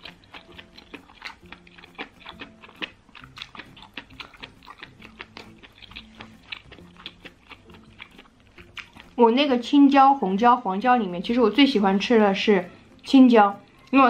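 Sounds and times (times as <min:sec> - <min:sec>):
wet chewing mouth clicks: 0:00.0 - 0:09.2.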